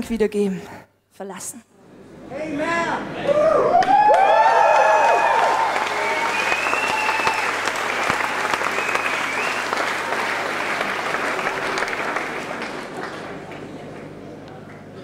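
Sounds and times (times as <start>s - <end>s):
audience applauding: 3.7s - 15.0s.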